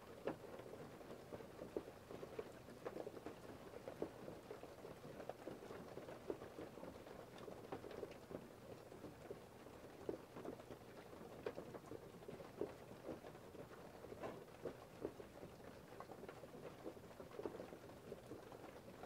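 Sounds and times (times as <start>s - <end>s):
light steady hiss: 0.0s - 19.0s
raindrops pattering: 0.0s - 19.0s.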